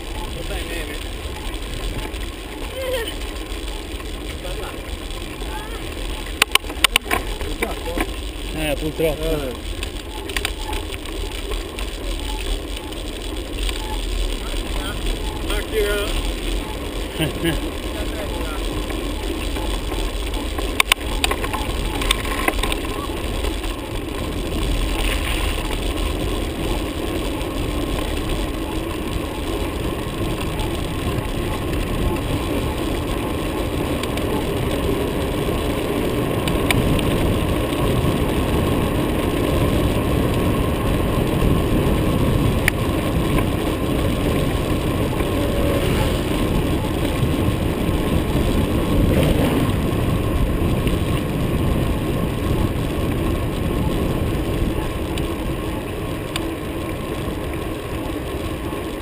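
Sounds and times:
wind and road rumble: 0.0 - 59.0.

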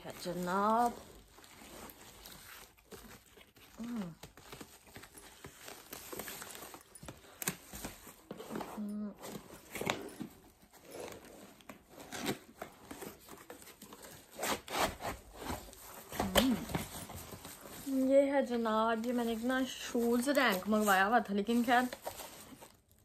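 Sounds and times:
cardboard box scraping and rustling: 7.5 - 18.2.

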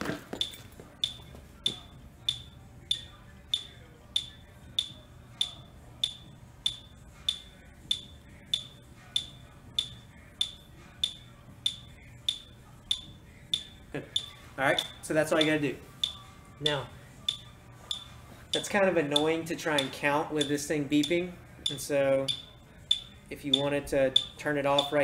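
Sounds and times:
metronome short high beeps: 0.4 - 14.4.

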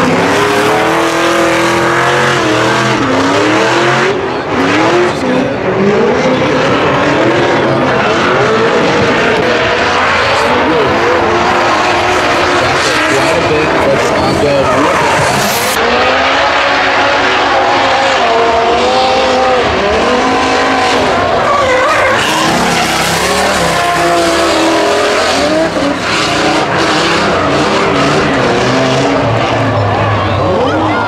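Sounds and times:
car engines revving hard: 0.0 - 31.0
tire squeal: 6.2 - 31.0.

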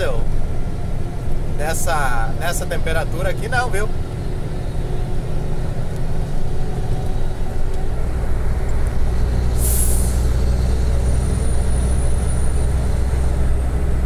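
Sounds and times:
diesel engine droning: 0.0 - 14.0
compressed air hiss: 9.6 - 10.3.

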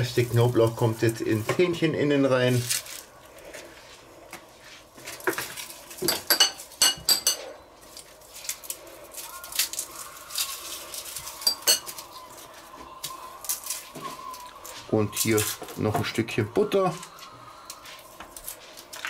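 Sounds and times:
metal fork clinking on dishes: 6.0 - 7.4, 11.4 - 12.0.

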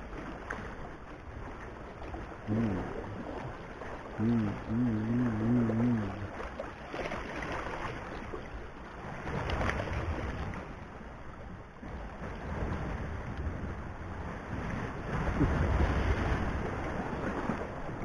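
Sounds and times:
water lapping against rocks: 0.0 - 10.9, 14.3 - 18.0
wavering hum: 4.2 - 6.3.

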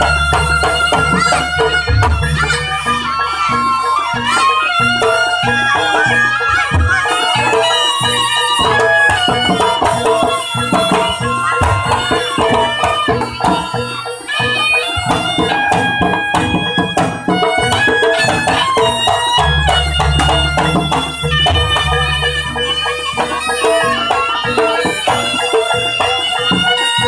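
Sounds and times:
hand drums: 0.0 - 27.0
nasal reed shawm melody: 0.0 - 27.0
struck percussion: 0.0 - 27.0.

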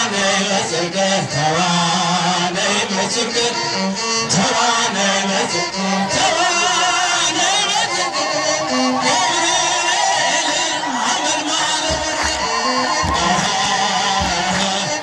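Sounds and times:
man singing a hymn: 0.0 - 15.0
amplified instrumental accompaniment: 3.3 - 15.0.

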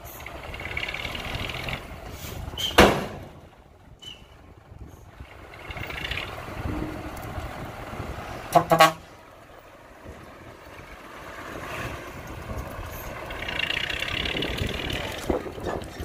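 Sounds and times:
truck diesel engine running: 0.0 - 16.0
loud double horn blast: 8.5 - 9.1.

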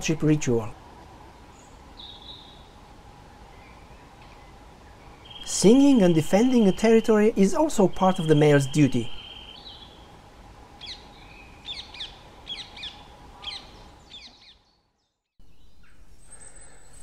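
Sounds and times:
bird whistling song: 2.0 - 2.7, 3.5 - 7.1, 7.9 - 10.0, 10.8 - 17.0.

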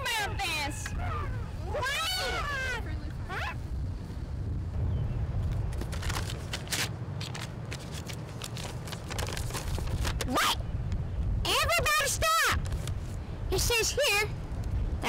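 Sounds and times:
wind rumbling on microphone: 0.0 - 15.0
paper rustling and crackling: 5.5 - 10.5.

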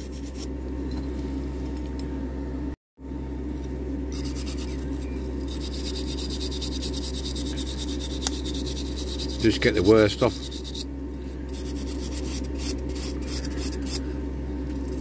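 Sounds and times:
steady low hum: 0.0 - 15.0
wire brush scrubbing metal: 4.1 - 10.9, 11.5 - 14.1.

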